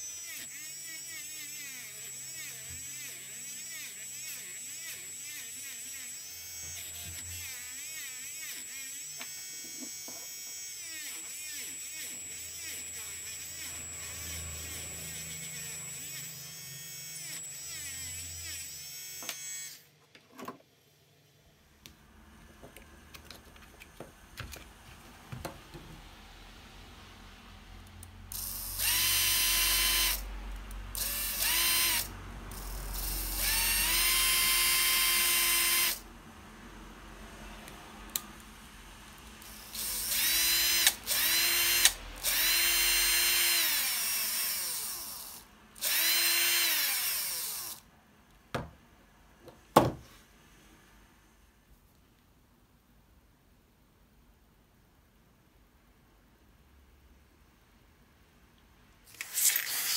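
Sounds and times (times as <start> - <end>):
electric motor whining: 28.3 - 30.2, 30.9 - 36.0, 39.4 - 47.8.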